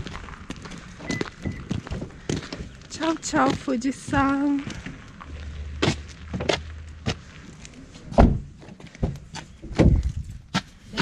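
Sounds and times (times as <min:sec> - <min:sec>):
footsteps on pavement: 0:00.0 - 0:10.9
car door opening: 0:08.0 - 0:10.0.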